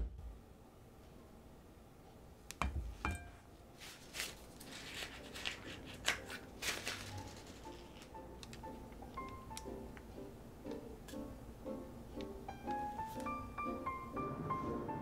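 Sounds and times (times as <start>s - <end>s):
piping bag crinkling: 3.8s - 9.1s.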